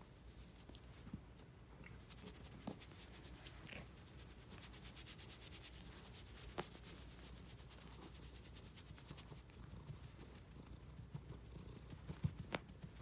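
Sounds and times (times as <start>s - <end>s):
hand rubbing cat fur: 0.0s - 1.3s, 1.9s - 13.0s.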